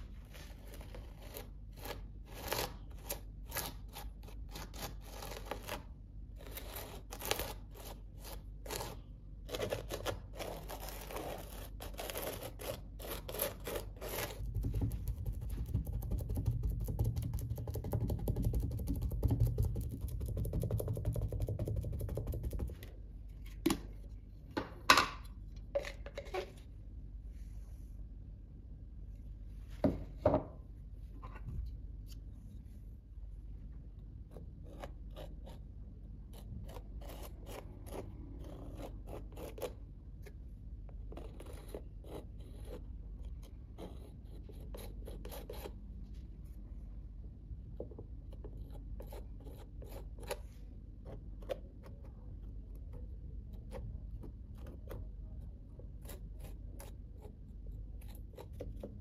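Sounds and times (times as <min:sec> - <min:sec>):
palette knife scraping paste on canvas: 0:00.0 - 0:18.3, 0:34.3 - 0:40.4, 0:41.0 - 0:45.8, 0:48.3 - 0:55.1, 0:55.8 - 0:59.0.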